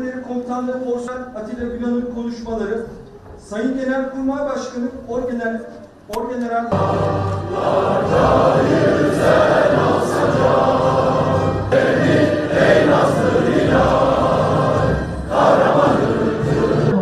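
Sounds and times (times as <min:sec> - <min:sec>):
choir singing to music: 0:06.7 - 0:17.0.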